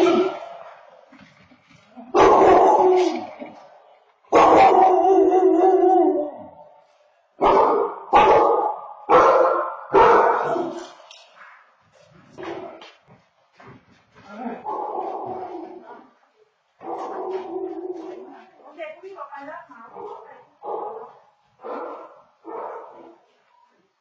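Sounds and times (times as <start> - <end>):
dog barking: 2.1 - 3.3, 4.3 - 6.3, 7.4 - 11.0, 14.6 - 15.9, 16.8 - 18.2, 19.9 - 23.2.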